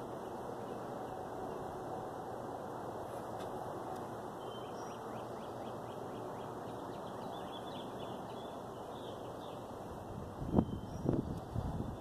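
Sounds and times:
steady background noise: 0.0s - 12.0s
bird twittering: 4.4s - 9.7s.

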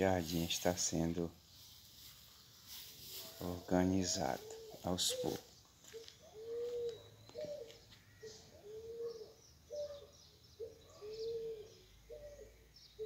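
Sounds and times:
small birds chirping faintly: 0.0s - 13.0s
dove cooing: 4.0s - 13.0s.

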